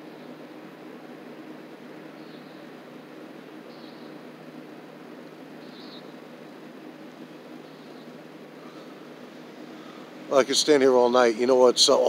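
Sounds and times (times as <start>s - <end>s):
outdoor night hum and hiss: 0.0s - 12.0s
faint high chirp: 5.6s - 6.1s.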